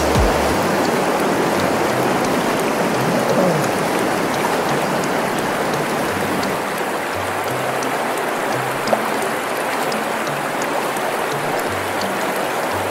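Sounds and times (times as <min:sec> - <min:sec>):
rushing water: 0:00.0 - 0:12.9.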